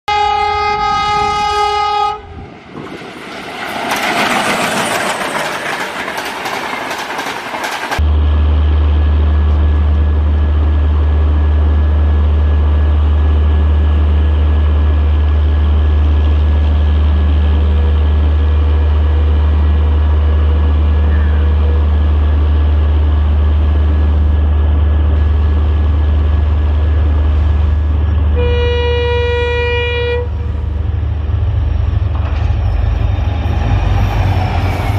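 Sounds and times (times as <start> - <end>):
locomotive horn: 0.0 - 2.4, 17.4 - 22.1, 28.3 - 30.8
diesel locomotive engines throbbing: 0.1 - 34.9
train rushing past clattering: 2.1 - 29.1, 30.0 - 34.9.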